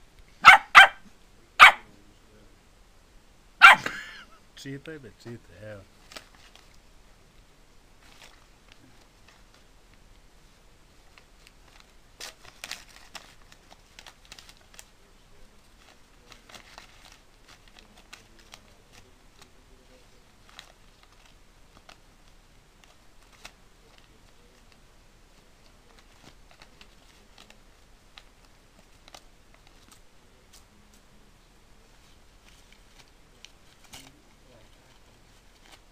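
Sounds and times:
paper crinkling and tearing: 0:05.7 - 0:06.8, 0:08.0 - 0:09.6, 0:11.0 - 0:22.0, 0:22.8 - 0:24.8, 0:25.4 - 0:31.0, 0:31.9 - 0:35.9.

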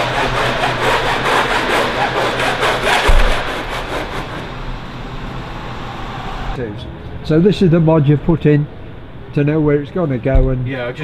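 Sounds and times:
hand tool rasping sheet metal: 0:00.0 - 0:04.4
steady low hum: 0:00.0 - 0:11.0
dull thump: 0:03.0 - 0:03.7, 0:10.3 - 0:10.7.

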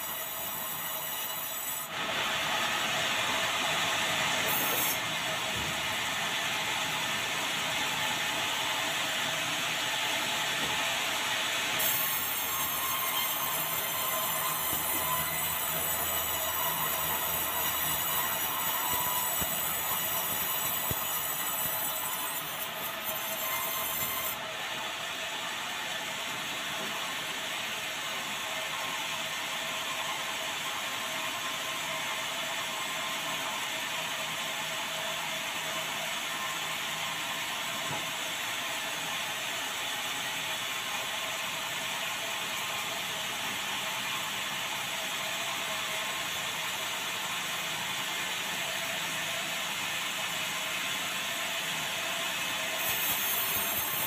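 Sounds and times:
band saw rasping through wood: 0:00.0 - 0:02.7, 0:03.4 - 0:05.2, 0:11.7 - 0:24.4, 0:52.6 - 0:54.0.

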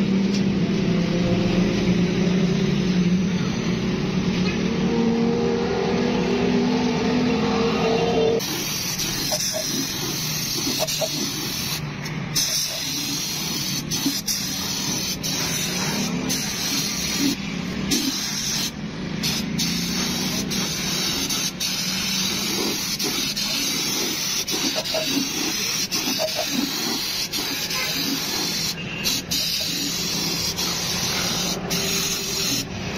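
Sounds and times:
spray gun hissing: 0:08.4 - 0:32.9.

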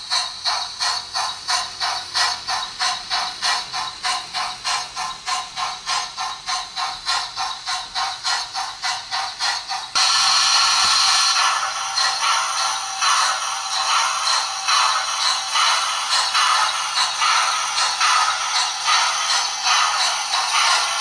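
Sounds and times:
model train chuffing: 0:00.0 - 0:21.0
steady loud noise: 0:10.0 - 0:21.0.

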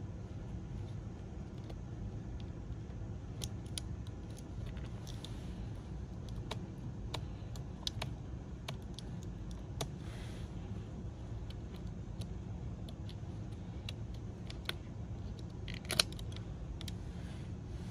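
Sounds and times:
steady low hum: 0:00.0 - 0:17.9
plastic tool clicking on electronics: 0:06.2 - 0:10.0.

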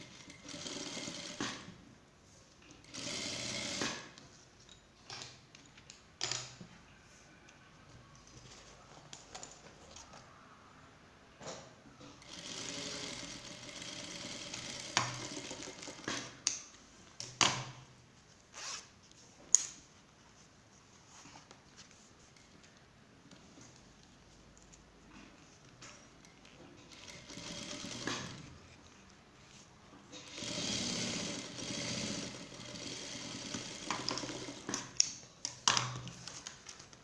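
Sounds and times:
sewing machine running: 0:00.0 - 0:01.7, 0:02.8 - 0:04.2, 0:12.2 - 0:16.3, 0:26.9 - 0:28.6, 0:30.2 - 0:34.8.

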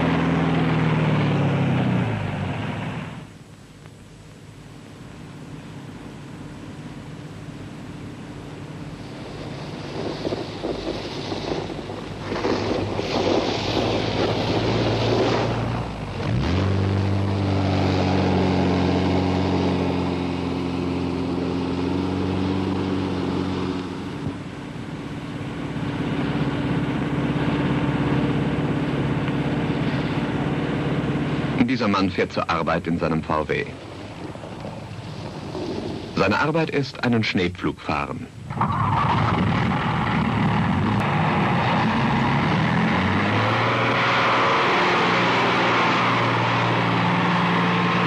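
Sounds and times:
car engine driving through snow: 0:00.0 - 0:03.4, 0:05.2 - 0:31.7, 0:33.5 - 0:36.2, 0:38.5 - 0:48.0
wind blowing: 0:05.2 - 0:37.2.

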